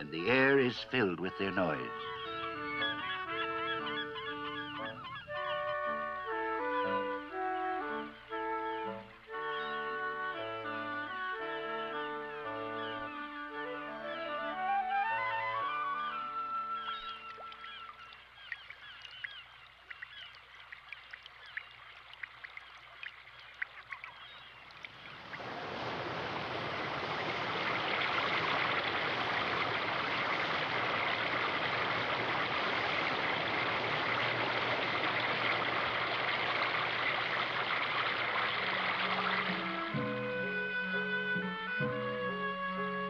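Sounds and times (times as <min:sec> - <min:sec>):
birds chirping: 0:00.0 - 0:41.5
waterfall rushing over rocks: 0:25.4 - 0:39.6.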